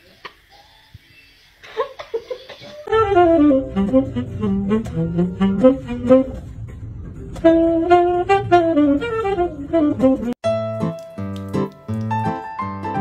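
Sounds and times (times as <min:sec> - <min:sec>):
saxophone slow melody: 0:02.9 - 0:10.4.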